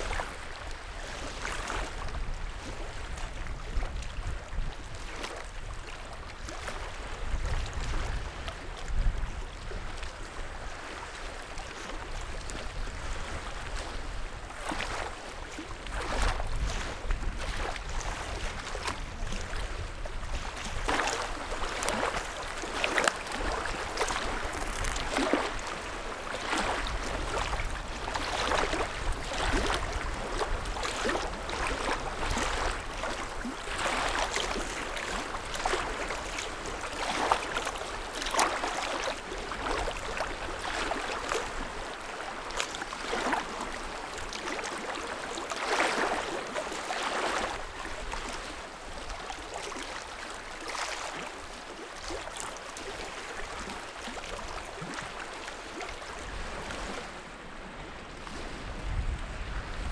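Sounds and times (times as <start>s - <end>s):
waves splashing against rocks: 20.6s - 41.9s
wind gusting on microphone: 57.6s - 59.9s.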